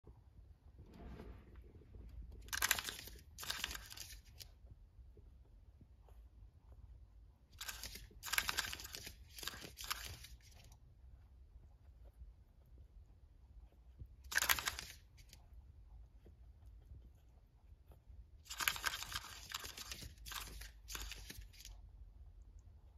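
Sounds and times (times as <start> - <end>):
rabbit claws scratching wooden floor: 1.9 - 4.7, 7.4 - 11.7, 13.7 - 21.9.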